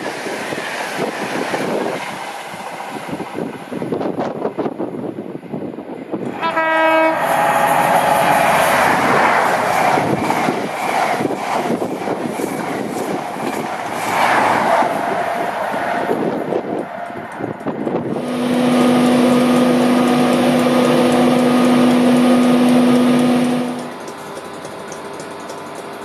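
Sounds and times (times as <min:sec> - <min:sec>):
train rushing and clattering past: 0:00.0 - 0:25.5
train horn note: 0:06.3 - 0:09.5, 0:18.0 - 0:24.0.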